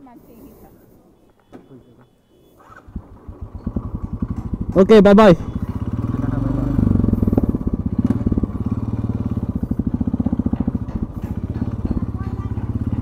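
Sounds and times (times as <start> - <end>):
motorcycle engine running: 2.7 - 13.0.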